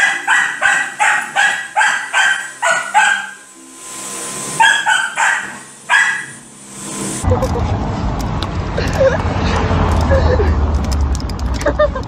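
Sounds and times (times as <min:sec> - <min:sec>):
small dog barking: 0:00.0 - 0:03.4, 0:04.6 - 0:06.4.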